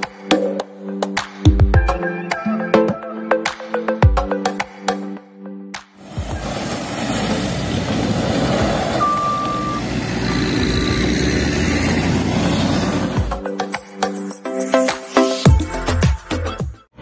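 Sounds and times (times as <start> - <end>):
diesel engine running: 6.0 - 13.4
high beeping alarm: 9.0 - 11.2.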